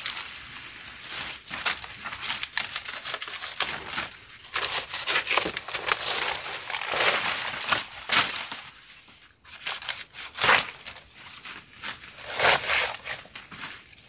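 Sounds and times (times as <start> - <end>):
machete slashing undergrowth: 11.9 - 13.6.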